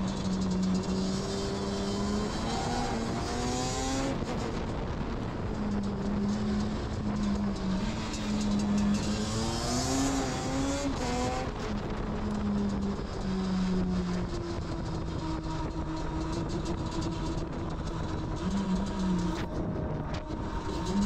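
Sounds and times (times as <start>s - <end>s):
two-stroke engine revving: 6.9s - 11.6s.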